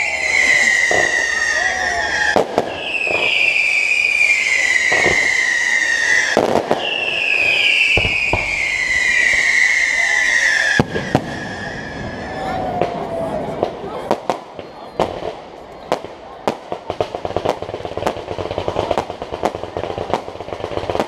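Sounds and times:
firework shells bursting: 0:00.1 - 0:11.9.

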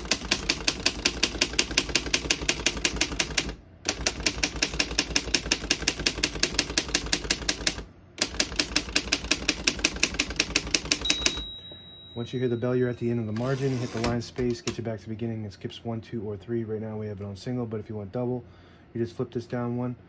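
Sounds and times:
typewriter keystrokes clicking: 0:00.0 - 0:11.5, 0:13.4 - 0:14.8.

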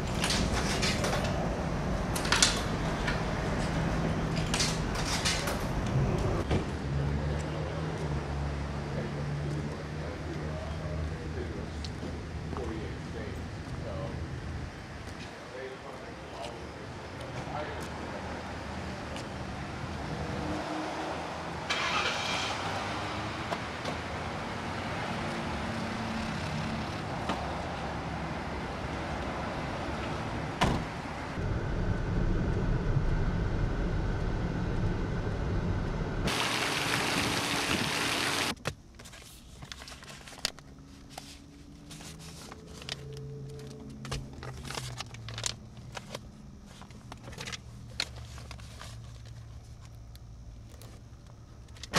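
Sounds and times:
car road and engine noise: 0:00.0 - 0:51.9
papers rustling: 0:38.5 - 0:50.0.

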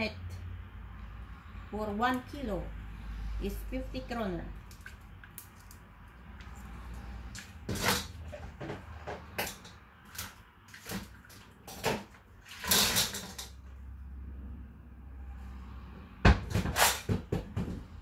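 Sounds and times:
kitchen knocks and clunks: 0:07.7 - 0:09.7, 0:16.2 - 0:18.0.

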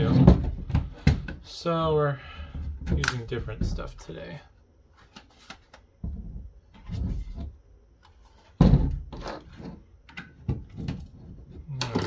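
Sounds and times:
device case knocks and clunks: 0:08.6 - 0:09.1.

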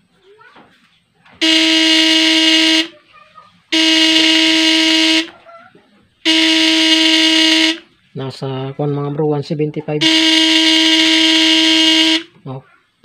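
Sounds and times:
transformer buzzing hum: 0:01.4 - 0:02.9, 0:03.7 - 0:05.3, 0:06.3 - 0:07.8, 0:10.0 - 0:12.3.

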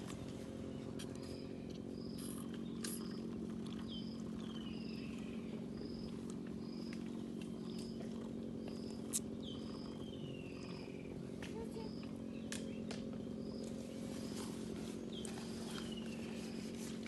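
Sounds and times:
low purring drone: 0:00.0 - 0:17.0
bird chirping: 0:00.7 - 0:08.0, 0:08.6 - 0:16.8.

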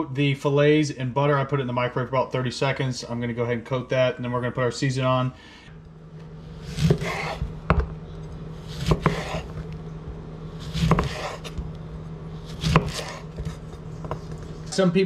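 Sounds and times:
knife slicing lemon wet scrape: 0:06.6 - 0:07.5, 0:08.6 - 0:09.6, 0:10.6 - 0:11.6, 0:12.4 - 0:13.8.

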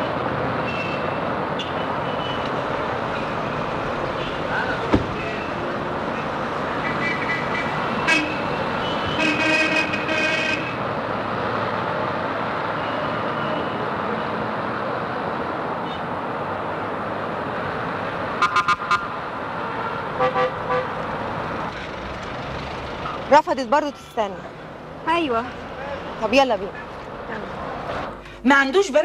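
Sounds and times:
city street traffic: 0:00.0 - 0:29.0
car horns honking: 0:06.8 - 0:10.8, 0:18.4 - 0:21.0.

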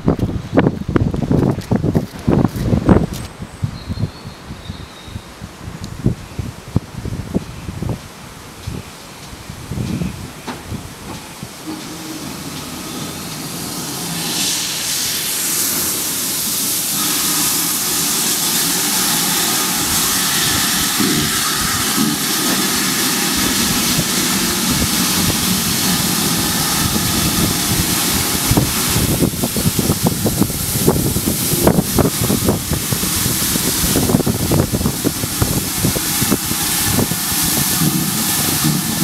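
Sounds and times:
steam locomotive hissing: 0:08.8 - 0:39.0.

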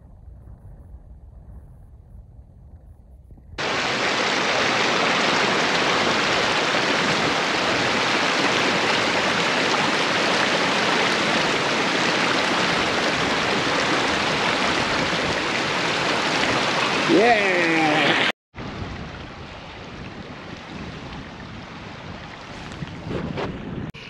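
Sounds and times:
stream rushing over rocks: 0:03.6 - 0:21.2.

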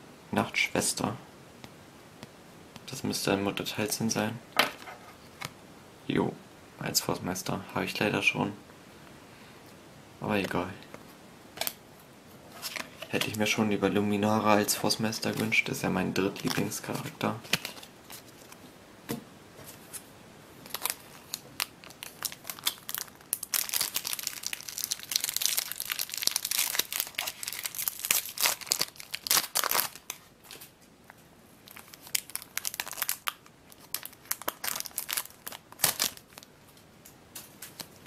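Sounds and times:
foil pack crinkling and tearing: 0:16.3 - 0:18.3, 0:20.6 - 0:30.7, 0:31.6 - 0:36.5.

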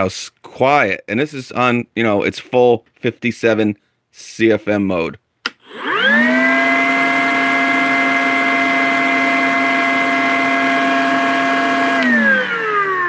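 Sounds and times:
vacuum motor whine: 0:05.6 - 0:13.0.

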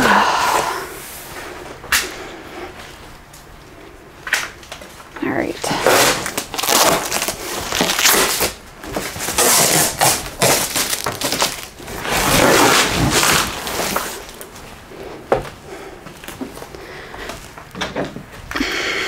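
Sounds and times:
cardboard and styrofoam scraping: 0:05.7 - 0:14.4.

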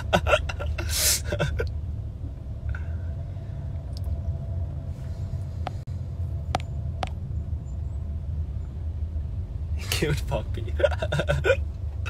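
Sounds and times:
car cabin rumble: 0:03.8 - 0:07.8.

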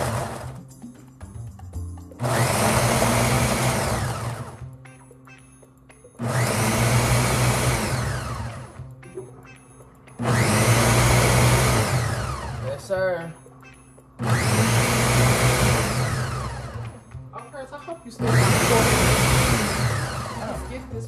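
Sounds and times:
blender whirring: 0:00.0 - 0:00.6, 0:02.2 - 0:04.7, 0:06.2 - 0:08.9, 0:10.2 - 0:12.8, 0:14.2 - 0:17.0, 0:18.2 - 0:20.9.

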